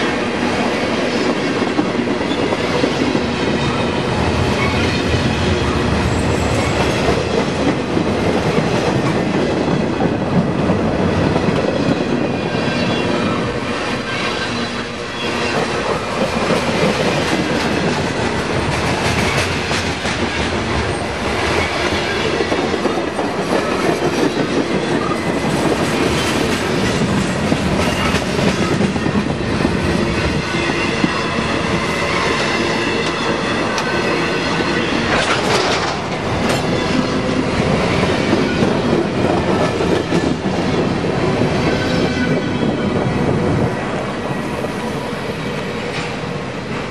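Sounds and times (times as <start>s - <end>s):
train wheels clattering on rails: 0.0s - 46.9s
wheels and brakes squealing: 11.9s - 15.8s.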